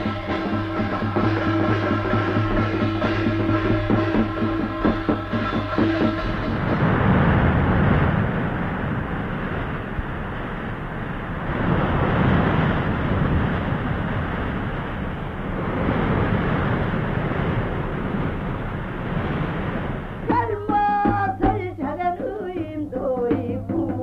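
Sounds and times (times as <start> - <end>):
sharp drum strokes: 0.0 - 7.6
loud rushing noise: 0.0 - 20.3
woman singing into microphone: 20.3 - 24.0.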